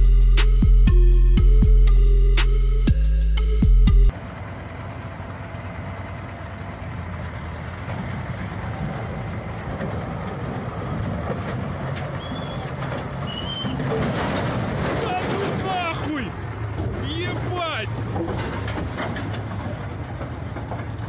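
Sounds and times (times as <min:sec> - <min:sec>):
armoured vehicle engine rumbling: 0:00.0 - 0:21.0
short high squeal: 0:12.2 - 0:13.8.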